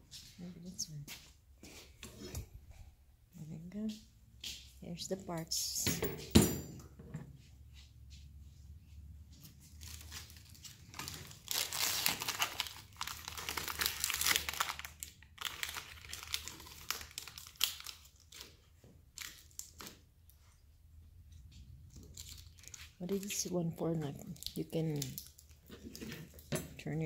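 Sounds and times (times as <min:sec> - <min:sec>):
plastic packaging crinkling and tearing: 0:09.7 - 0:20.0, 0:21.9 - 0:26.5.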